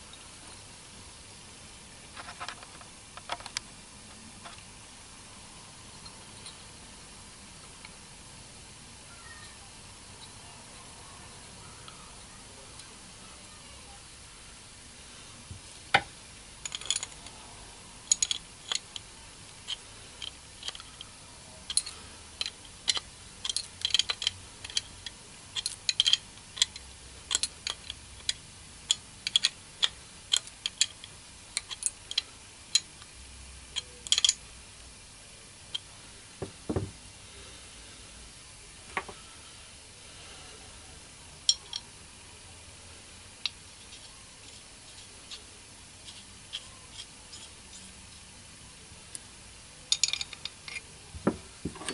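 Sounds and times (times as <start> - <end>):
small metal parts clicking: 16.6 - 17.4, 18.0 - 33.1, 33.8 - 34.4, 49.9 - 50.9.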